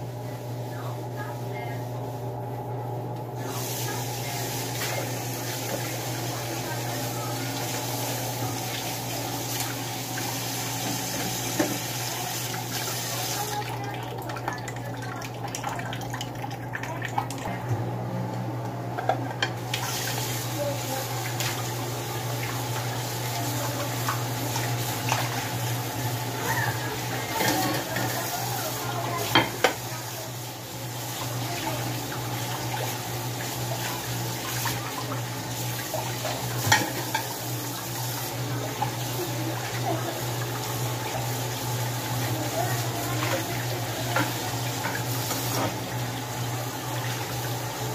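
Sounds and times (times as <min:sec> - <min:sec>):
tap running into sink: 0:10.8 - 0:11.9.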